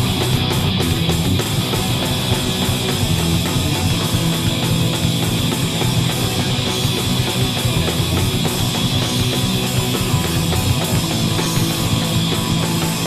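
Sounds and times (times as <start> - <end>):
rock band playing live: 0.0 - 13.0.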